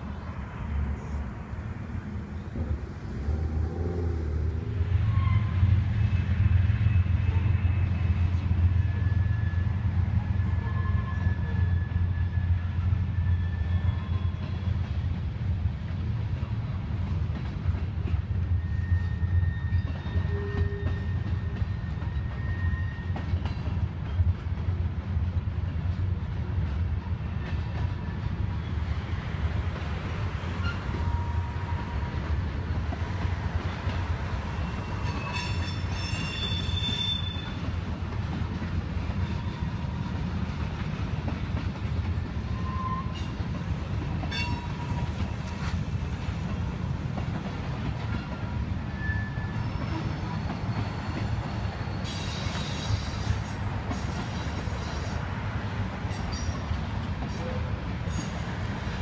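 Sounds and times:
train wheels rumbling on rail: 0.0 - 59.0
high-pitched wheel squeal: 4.6 - 5.8, 8.8 - 14.5, 18.6 - 23.2, 30.6 - 32.1, 34.6 - 37.6, 42.5 - 43.3, 48.9 - 51.1, 57.4 - 59.0
wheel squeals: 18.6 - 23.2, 34.5 - 37.6, 48.1 - 55.2, 56.1 - 56.7, 57.3 - 59.0.

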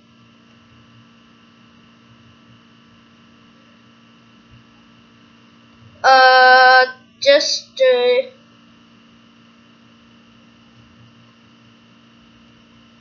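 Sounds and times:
faint electrical hum: 0.0 - 13.0
person holding a drawn-out vowel: 6.0 - 8.3.

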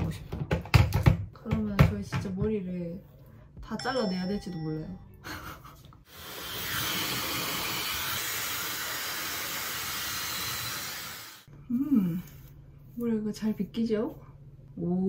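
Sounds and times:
hair dryer blowing air: 6.1 - 11.5.

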